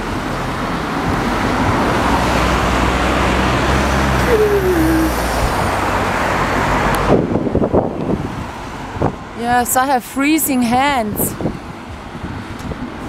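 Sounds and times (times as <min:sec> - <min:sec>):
vehicle engine humming: 0:00.0 - 0:06.8
road traffic rush: 0:00.0 - 0:13.0.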